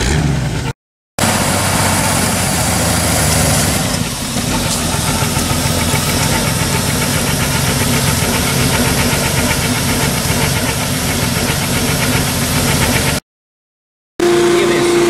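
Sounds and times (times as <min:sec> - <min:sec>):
van engine ticking: 0:01.2 - 0:13.2.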